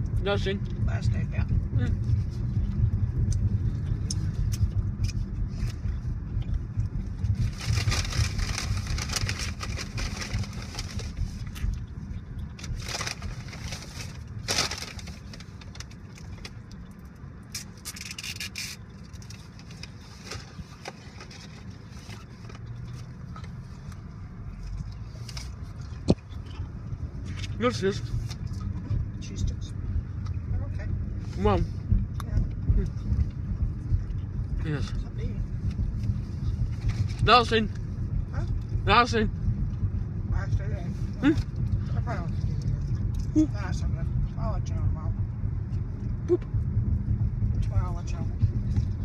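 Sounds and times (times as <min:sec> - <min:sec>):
car engine and road rumble: 0:00.0 - 0:49.0
rustling: 0:07.3 - 0:11.8.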